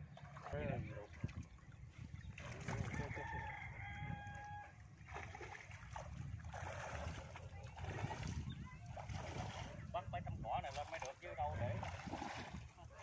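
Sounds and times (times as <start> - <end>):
rooster crowing: 3.0 - 4.8.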